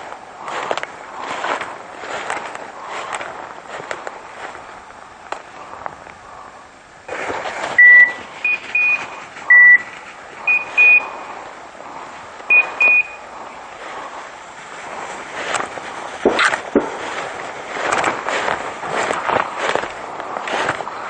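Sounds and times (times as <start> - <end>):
footsteps rustling through dry leaves: 0.0 - 21.0
electronic beeper collars: 7.8 - 9.9, 10.5 - 11.1, 12.5 - 13.3.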